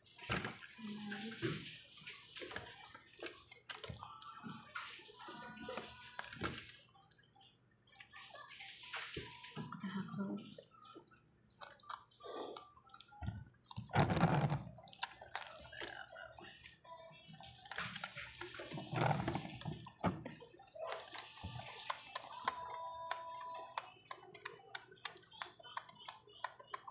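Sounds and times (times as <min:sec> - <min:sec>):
puppy suckling and slurping: 0:08.0 - 0:26.9.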